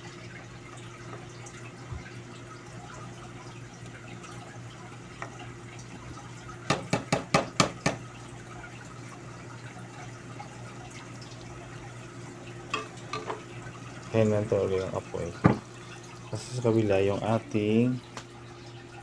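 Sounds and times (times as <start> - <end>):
ladle knocking against pan: 6.7 - 8.0.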